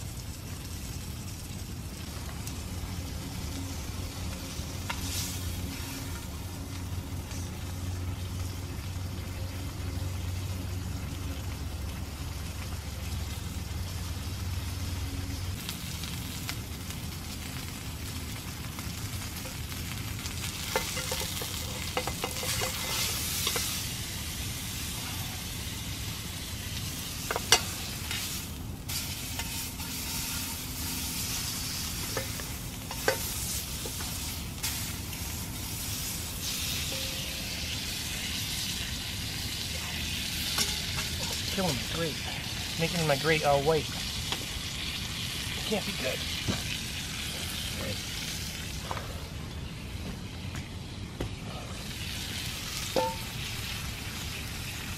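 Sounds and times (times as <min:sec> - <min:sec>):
steak sizzling in a pan: 0:00.1 - 0:10.4, 0:12.0 - 0:48.8, 0:51.8 - 0:54.9
tongs clicking on metal: 0:32.2 - 0:33.3.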